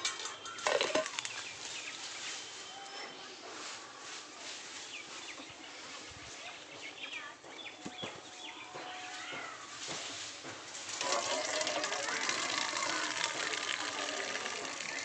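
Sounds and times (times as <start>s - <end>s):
birds chirping: 0.1s - 3.6s, 4.7s - 9.8s.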